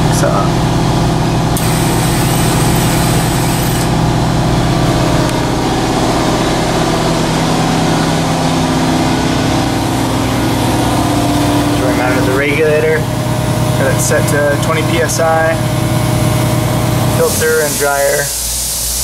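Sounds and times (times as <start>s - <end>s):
air compressor motor humming: 0.0s - 19.0s
compressed air hissing: 1.6s - 4.0s, 16.9s - 19.0s.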